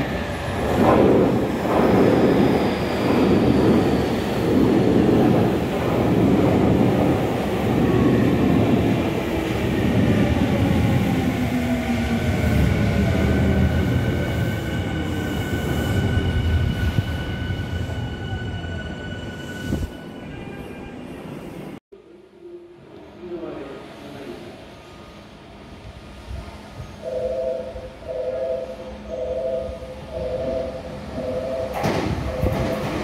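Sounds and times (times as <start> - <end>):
train wheels rumbling over rails: 0.0 - 15.9.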